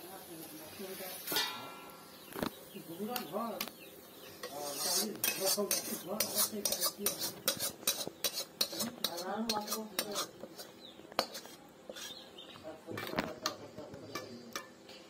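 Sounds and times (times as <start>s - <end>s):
metal spatula scraping metal pan: 4.3s - 12.3s.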